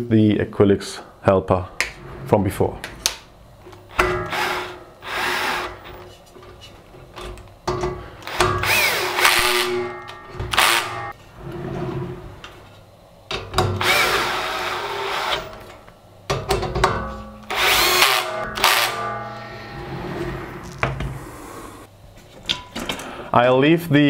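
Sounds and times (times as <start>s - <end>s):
cordless drill driving screws: 4.3s - 5.8s, 8.2s - 9.7s, 13.8s - 15.5s.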